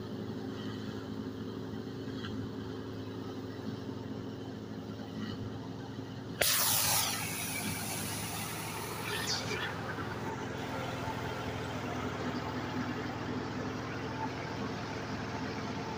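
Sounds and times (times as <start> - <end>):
loud hissing rush: 6.4 - 11.1
thresher and tractor drone: 6.4 - 15.9.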